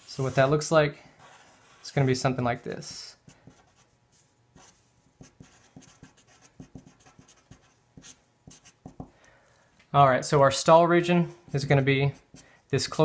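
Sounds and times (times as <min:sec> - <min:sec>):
felt-tip marker writing on paper: 0:04.6 - 0:08.9.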